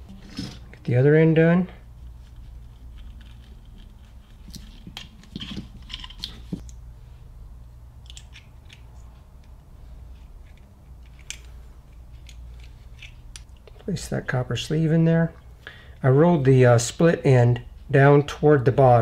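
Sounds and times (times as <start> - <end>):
hands handling cable parts: 2.0 - 6.8.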